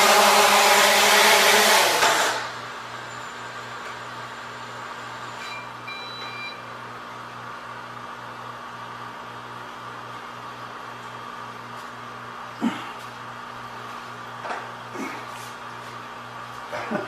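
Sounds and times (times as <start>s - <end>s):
short high beeps: 5.3s - 6.6s.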